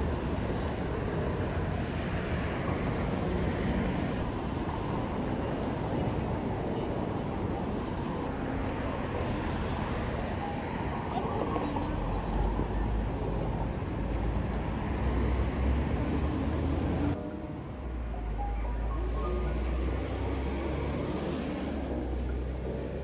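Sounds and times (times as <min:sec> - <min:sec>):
passing cars: 0:00.0 - 0:23.0.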